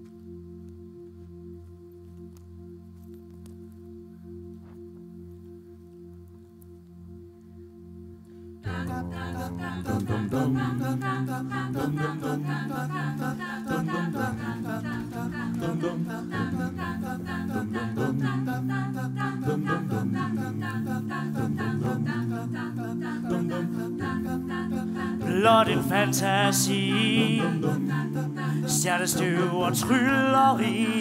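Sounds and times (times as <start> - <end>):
held chords: 0.0 - 31.0
wordless choir-like singing: 8.6 - 31.0.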